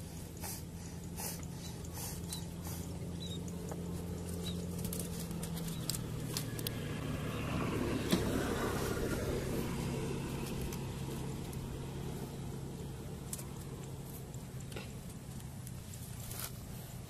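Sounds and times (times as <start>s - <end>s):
low motor hum: 0.0s - 17.0s
wire-mesh trap rattling: 4.0s - 6.8s.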